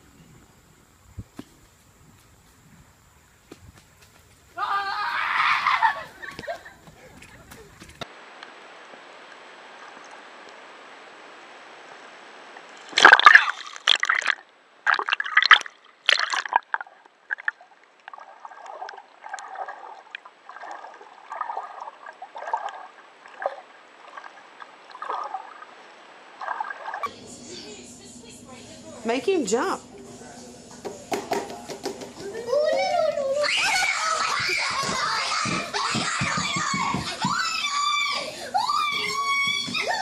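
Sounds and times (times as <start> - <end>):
steady hiss: 0.0 - 4.6
loud water splashes: 12.9 - 17.5
muffled water sloshing: 12.9 - 27.1.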